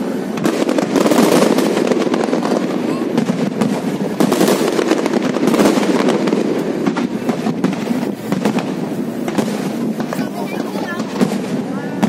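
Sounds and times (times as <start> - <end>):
fireworks bangs and crackling: 0.0 - 12.0.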